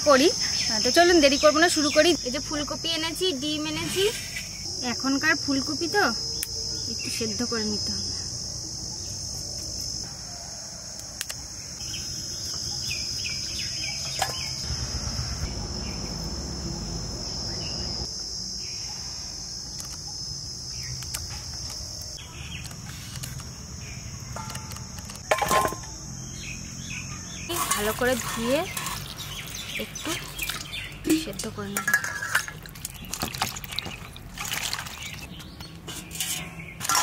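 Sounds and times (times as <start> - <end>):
high-pitched insect drone: 0.0 - 30.9
clatter into steel bowl: 25.3 - 25.8, 27.5 - 29.2, 31.8 - 35.1, 35.9 - 37.0.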